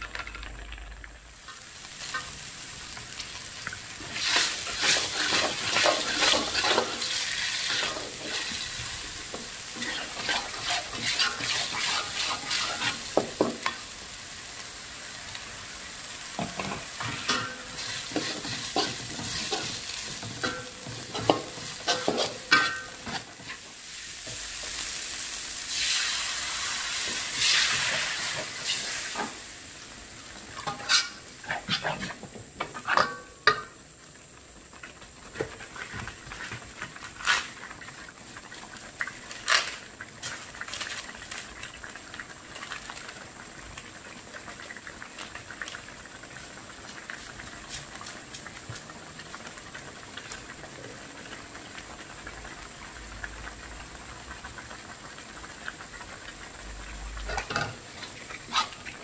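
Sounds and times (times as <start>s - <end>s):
paste sizzling in a wok: 0.1s - 59.0s
loud hiss of liquid added: 0.5s - 31.4s
spatula scraping a pan: 4.1s - 13.8s, 16.4s - 23.6s, 30.6s - 33.7s, 57.3s - 59.0s
sauce bubbling: 33.7s - 59.0s.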